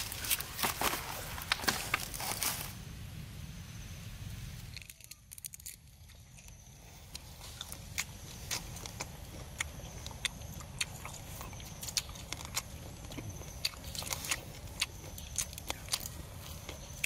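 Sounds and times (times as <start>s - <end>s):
grilled meat tearing apart: 4.7s - 6.6s
chewing clicks: 4.8s - 17.0s.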